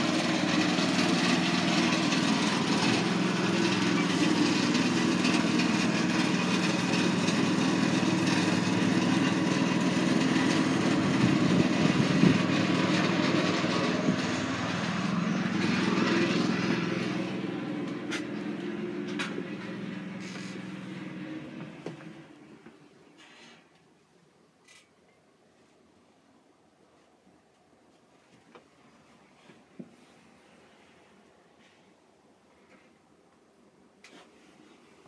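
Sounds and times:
engine humming steadily: 0.0 - 23.0.

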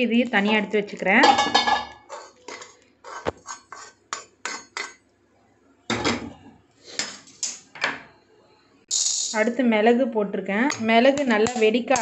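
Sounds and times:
metal spatula scraping pan: 1.2 - 5.0.

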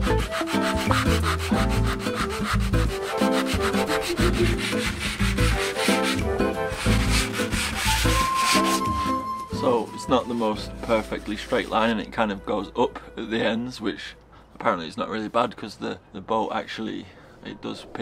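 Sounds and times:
background music with beat: 0.0 - 11.4
sandpaper rubbing on hull: 0.0 - 12.0.

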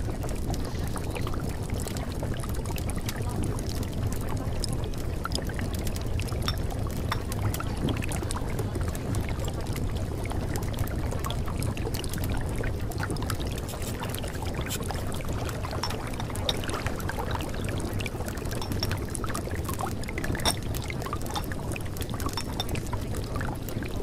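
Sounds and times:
flowing water with low rumble: 0.0 - 24.0
fine crackles: 13.4 - 16.8.

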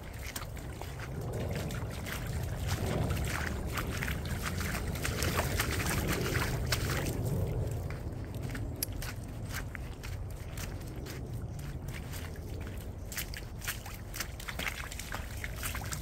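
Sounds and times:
footsteps splashing in mud puddles: 0.0 - 16.0
steady low rumble: 0.0 - 16.0.

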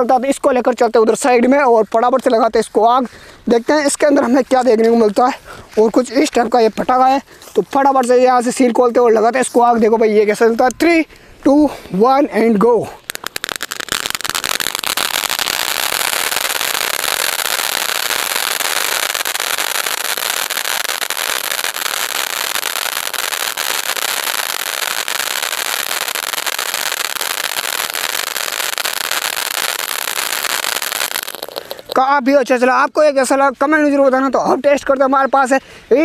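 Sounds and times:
firework hissing and crackling: 12.8 - 32.1.

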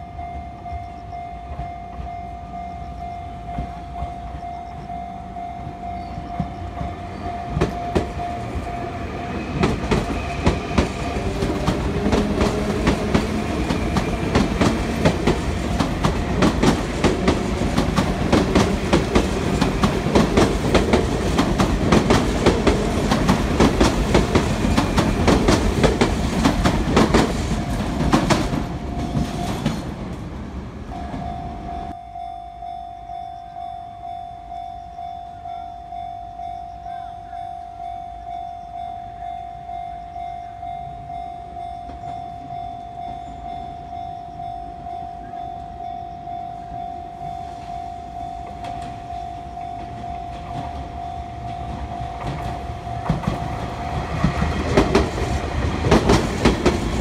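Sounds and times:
level crossing ringing tone: 0.0 - 9.6, 30.9 - 54.6
train wheels clattering over rails: 5.6 - 30.4, 48.5 - 57.0.

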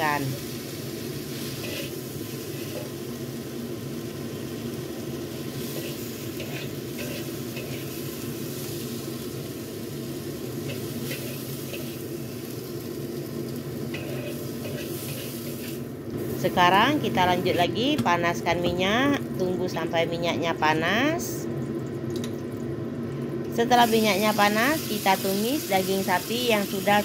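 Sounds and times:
vegetables sizzling in a wok: 0.0 - 20.0, 23.6 - 27.0
spatula scraping wok: 1.0 - 3.0, 5.4 - 9.1, 10.5 - 12.5, 13.8 - 15.9.

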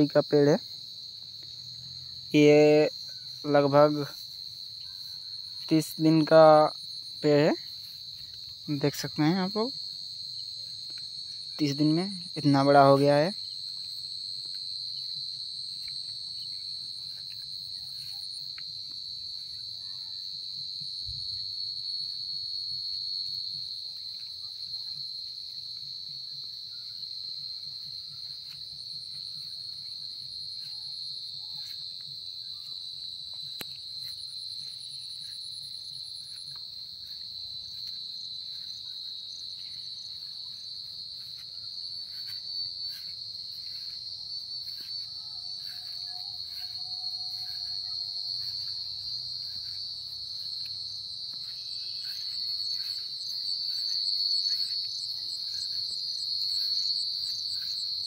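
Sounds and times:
crickets trilling: 0.0 - 58.0
high insect buzz: 0.0 - 58.0.

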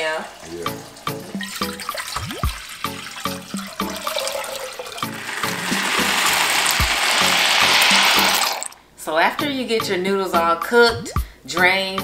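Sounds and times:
water pouring into steel pot: 0.0 - 8.8
water running into plastic pitcher: 0.0 - 8.8
background music with steady beat: 0.2 - 12.0.

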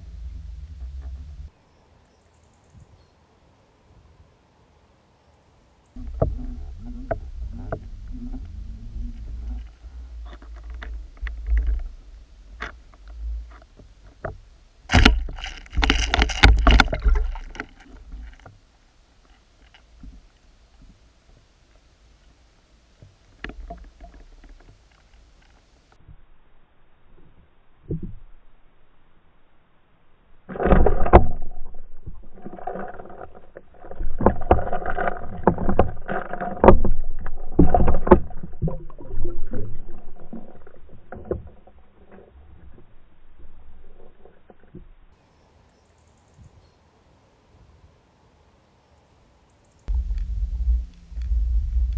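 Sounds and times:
underwater knocking and clicking: 6.0 - 18.6, 23.0 - 25.6, 30.5 - 45.0, 49.9 - 51.9
rushing water: 6.0 - 25.8.

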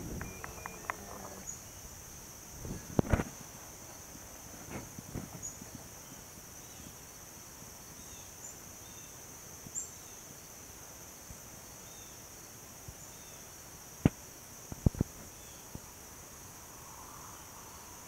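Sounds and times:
faint short chirps: 0.0 - 1.5
insect chorus: 0.0 - 18.0.

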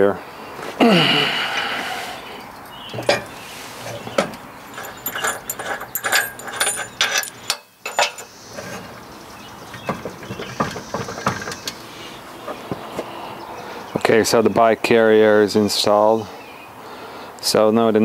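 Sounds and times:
metal clinking and rattling: 3.9 - 8.3.

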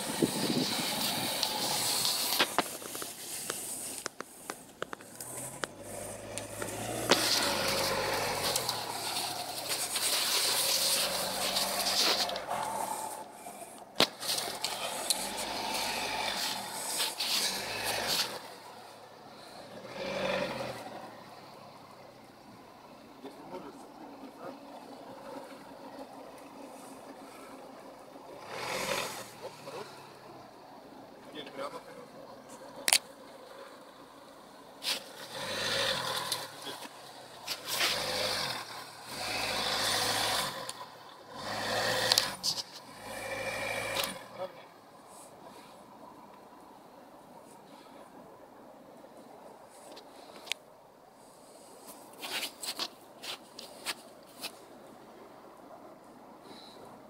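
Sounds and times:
tyres crunching on snow: 0.0 - 21.8, 34.8 - 44.4, 51.7 - 54.7
car engine revving: 0.0 - 44.7.

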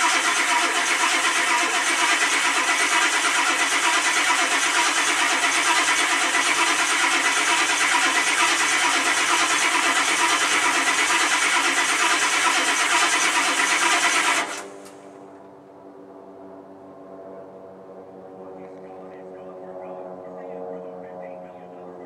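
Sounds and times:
diesel engine starter cranking: 0.0 - 15.0.

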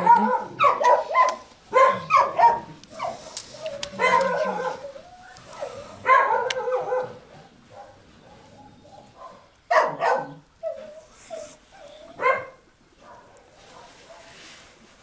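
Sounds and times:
dog whining and yowling: 0.0 - 7.0, 9.8 - 12.5.

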